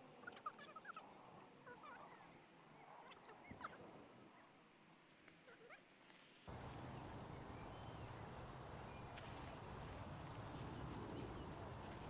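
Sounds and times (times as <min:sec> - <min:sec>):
faint bird chirps: 0:06.5 - 0:12.0
steady low rumble: 0:06.5 - 0:12.0.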